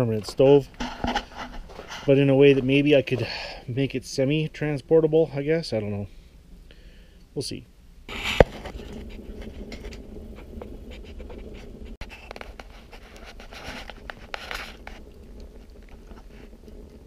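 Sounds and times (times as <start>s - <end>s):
wood fire popping and crackling: 0.0s - 5.7s, 8.1s - 17.0s
stove low rumble: 0.0s - 17.0s.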